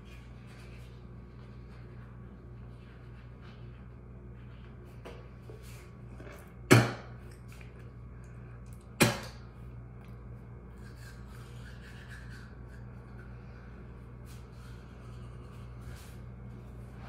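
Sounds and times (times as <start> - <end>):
toothbrush scrubbing teeth: 10.6 - 16.0.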